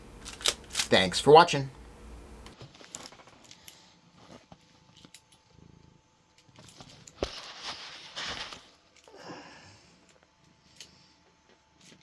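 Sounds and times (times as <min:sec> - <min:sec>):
cat purring: 0:05.2 - 0:07.1
fur rustling against phone: 0:06.6 - 0:08.9.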